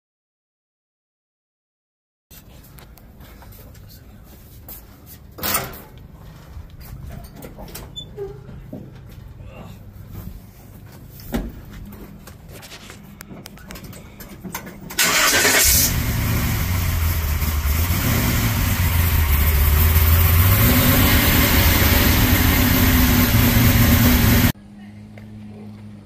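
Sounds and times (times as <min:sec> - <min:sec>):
engine cranking: 0:14.9 - 0:24.5
pickup engine running: 0:15.0 - 0:24.6.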